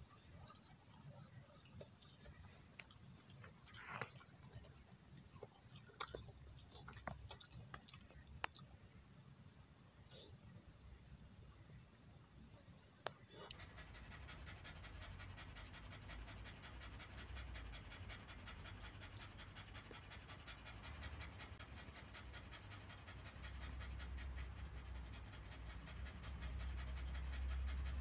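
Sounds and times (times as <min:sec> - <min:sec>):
dog panting: 0:00.0 - 0:08.6, 0:13.3 - 0:28.0.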